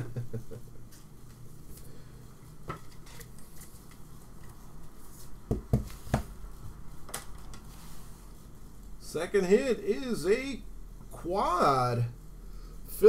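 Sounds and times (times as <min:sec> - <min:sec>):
knocks on tabletop: 0:05.5 - 0:06.3.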